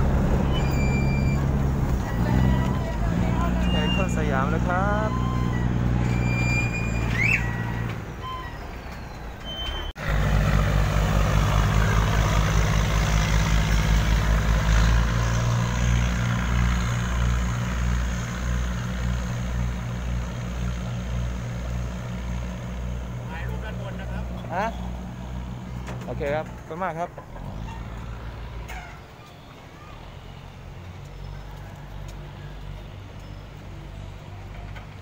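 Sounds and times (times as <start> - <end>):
boat diesel engine throbbing: 0.0 - 8.9, 9.7 - 29.2.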